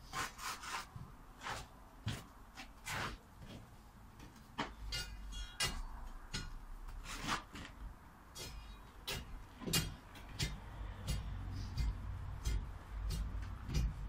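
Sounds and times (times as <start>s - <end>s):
metallic ring: 4.9s - 6.6s.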